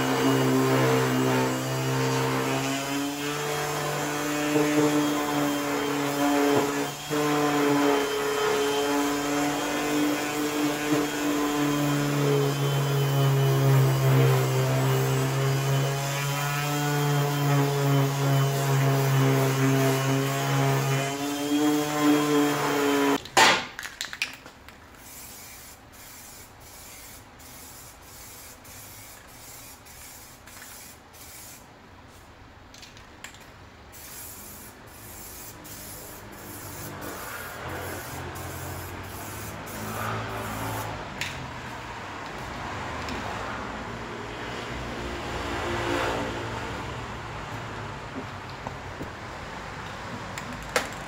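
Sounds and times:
faint hiss: 33.9 - 39.9.

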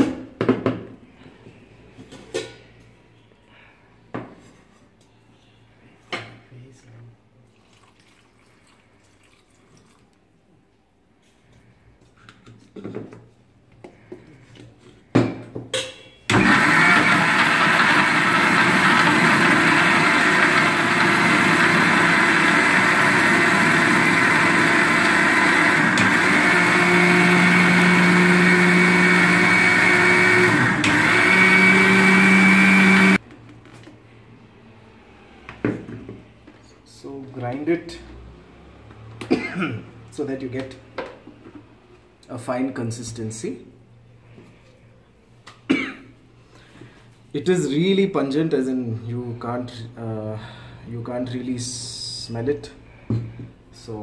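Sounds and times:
electric mixer grinder running: 16.3 - 33.2.

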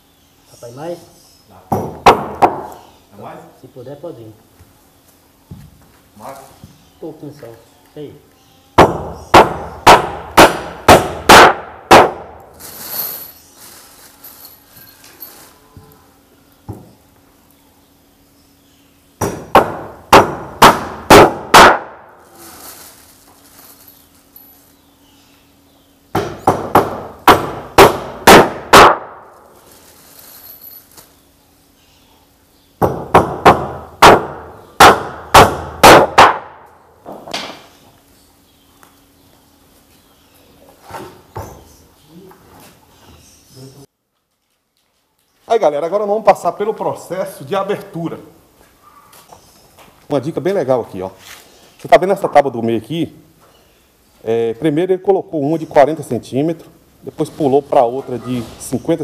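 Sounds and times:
hammer striking nails into wood: 1.7 - 2.7, 8.8 - 12.2, 19.2 - 21.9, 26.1 - 29.1, 32.8 - 36.4
soft hissing: 12.6 - 16.2, 22.2 - 24.8.

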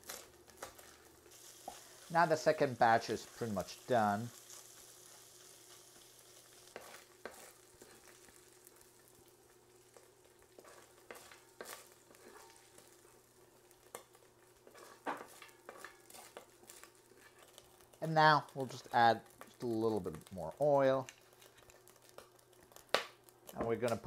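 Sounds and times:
meat sizzling in a pot: 0.0 - 24.0
spoon stirring and scraping: 5.7 - 8.5, 9.9 - 18.0, 21.1 - 22.9.

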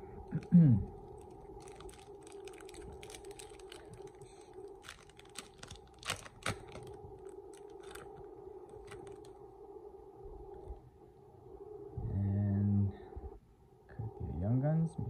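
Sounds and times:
steady low hum: 0.0 - 15.0
foil wrapper crinkling and tearing: 0.9 - 9.3.

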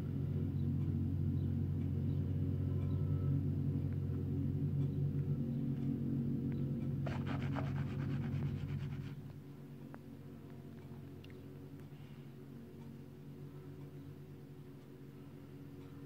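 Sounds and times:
diesel engines humming: 0.0 - 16.0.

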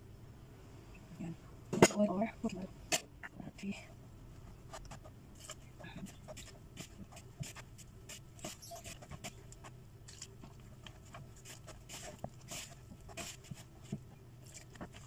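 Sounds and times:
faint low hum: 0.0 - 15.0
hands kneading dough in bowl: 3.3 - 15.0.

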